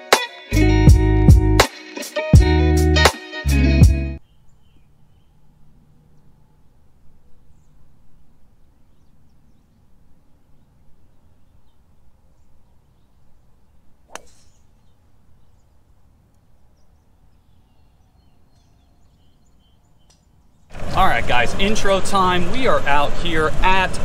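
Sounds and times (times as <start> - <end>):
low wind rumble: 4.5 - 24.0
golf club striking ball: 14.0 - 14.8.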